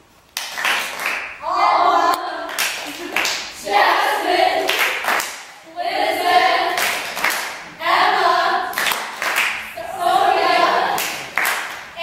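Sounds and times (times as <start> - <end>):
hands clapping: 0.4 - 1.4, 2.1 - 3.5, 4.6 - 5.6, 6.8 - 7.6, 8.7 - 9.6, 10.9 - 11.9
young women singing together: 1.4 - 12.0.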